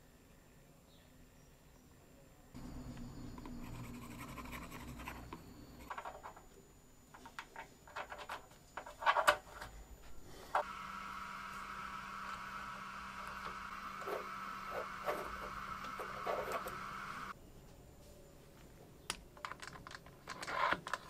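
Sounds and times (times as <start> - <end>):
faint low hum: 0.0 - 20.3
metal parts scraping and rubbing: 3.5 - 6.5, 7.1 - 9.8, 19.4 - 21.0.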